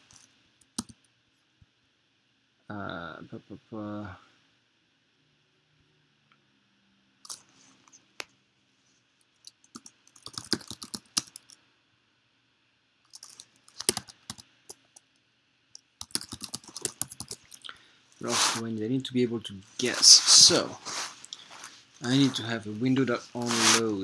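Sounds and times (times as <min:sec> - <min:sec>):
computer keyboard typing: 0:09.4 - 0:11.6, 0:13.1 - 0:14.4, 0:16.0 - 0:17.7.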